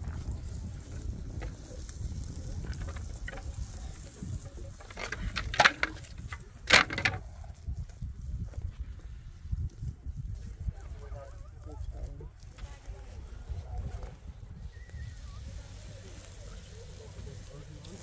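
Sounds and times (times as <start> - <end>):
sharp clattering knocks: 4.8 - 7.2.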